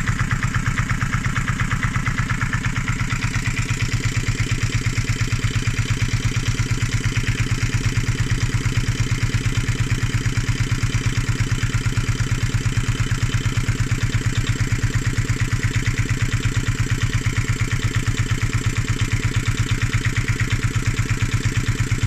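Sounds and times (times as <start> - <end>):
diesel engine running: 0.0 - 8.9.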